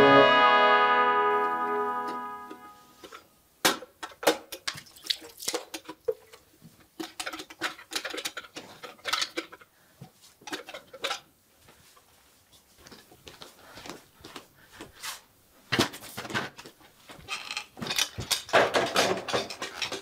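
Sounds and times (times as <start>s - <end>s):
music: 0.0s - 3.0s.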